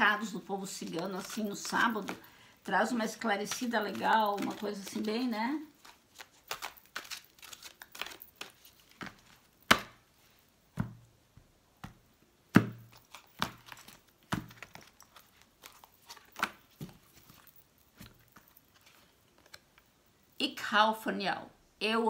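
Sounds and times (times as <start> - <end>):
cards being shuffled: 0.2 - 10.1, 12.6 - 19.9
cards slapped on table: 9.7 - 10.0.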